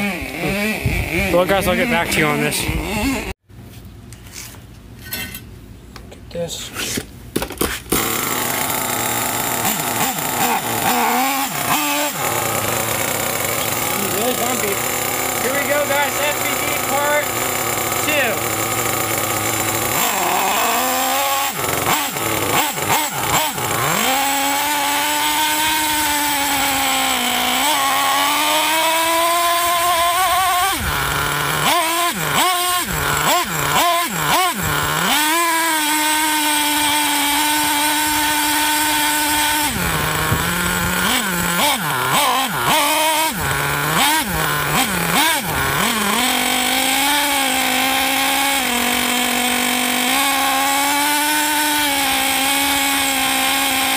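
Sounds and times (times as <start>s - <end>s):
small engine revving: 0.0s - 3.4s, 7.6s - 53.9s.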